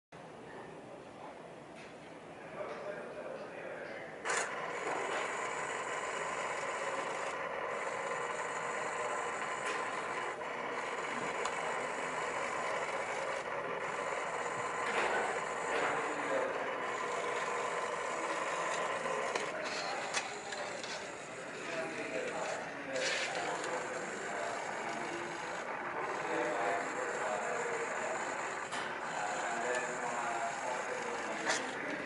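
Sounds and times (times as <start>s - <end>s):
servo motor gear whine: 4.3s - 32.0s.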